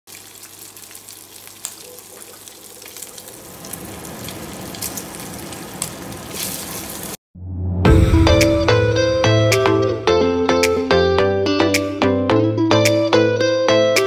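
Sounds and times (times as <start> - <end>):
bacon sizzling in a frying pan: 0.1 - 7.2
fat crackling and popping: 0.1 - 7.2.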